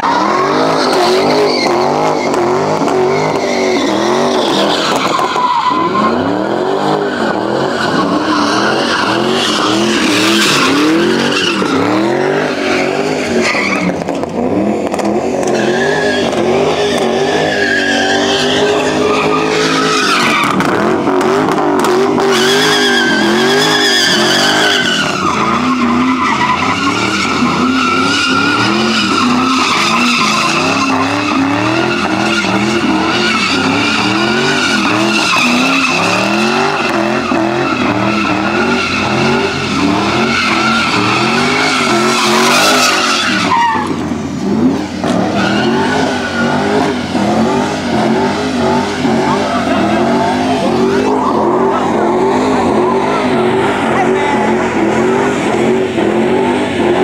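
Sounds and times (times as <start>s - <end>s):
car engine revving: 0.0s - 57.0s
tyres squealing: 22.2s - 44.1s, 45.0s - 56.9s.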